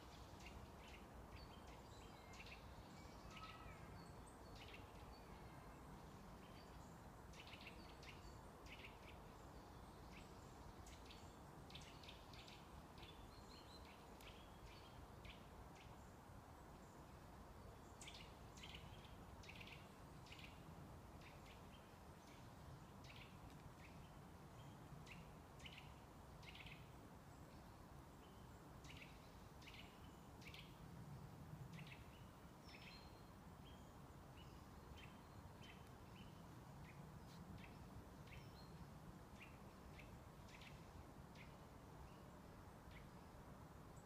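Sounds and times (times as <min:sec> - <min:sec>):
low background hiss: 0:00.0 - 0:44.0.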